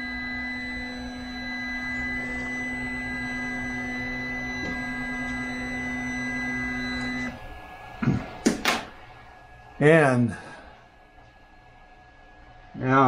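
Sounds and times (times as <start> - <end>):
stepper motors whining: 0.0 - 9.7.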